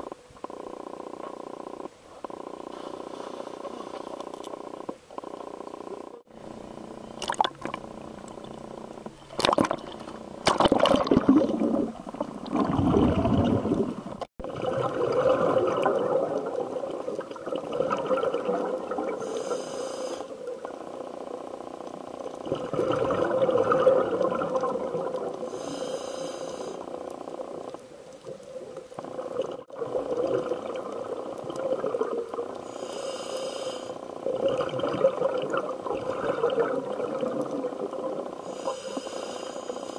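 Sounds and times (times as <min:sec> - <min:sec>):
diver exhaled bubbles rumbling: 0:06.9 - 0:19.2, 0:22.2 - 0:25.5, 0:27.3 - 0:32.6, 0:34.2 - 0:38.4
regulator inhalation hiss: 0:19.2 - 0:20.4, 0:25.4 - 0:26.9, 0:32.6 - 0:34.1, 0:38.4 - 0:39.9.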